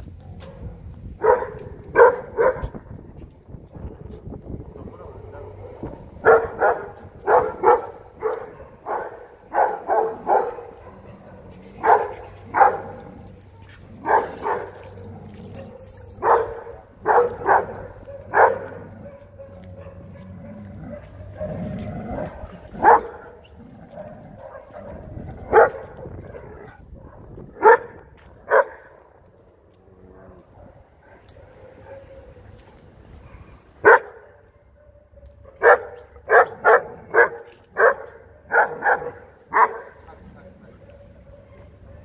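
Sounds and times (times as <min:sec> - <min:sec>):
dog barking: 0:00.3 - 0:02.8, 0:05.0 - 0:29.0, 0:30.2 - 0:32.4, 0:33.2 - 0:42.0.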